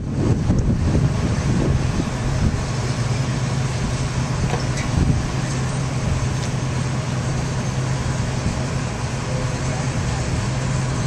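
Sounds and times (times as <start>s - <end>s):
tractor engines running: 0.0s - 11.0s.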